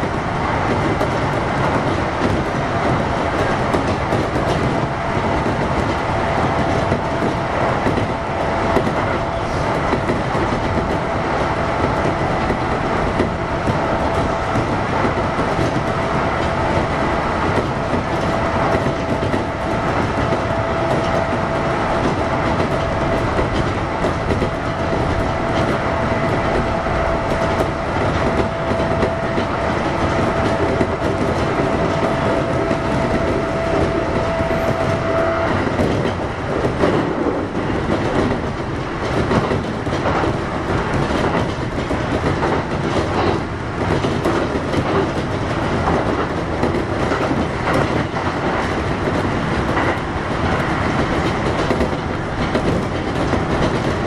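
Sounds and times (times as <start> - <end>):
train wheel and rail rumble: 0.0 - 54.0
wheels clicking over rail joints: 0.0 - 54.0.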